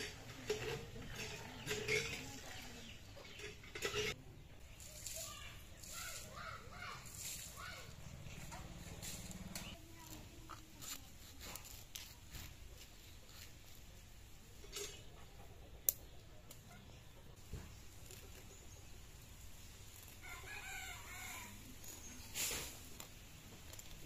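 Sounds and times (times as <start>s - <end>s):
chickens clucking: 0.0s - 4.6s, 14.5s - 19.6s.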